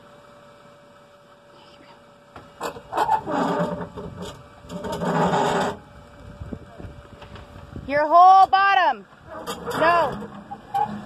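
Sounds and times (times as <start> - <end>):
vehicle underside scraping on rock: 2.6 - 5.9, 9.2 - 11.0.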